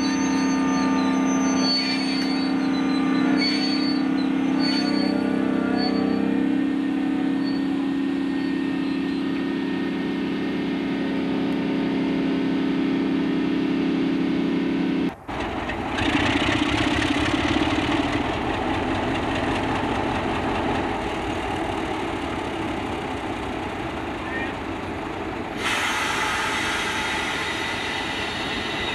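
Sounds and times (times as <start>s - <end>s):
locomotive engine running rough: 0.0s - 28.9s
diesel engine idling: 6.5s - 28.7s.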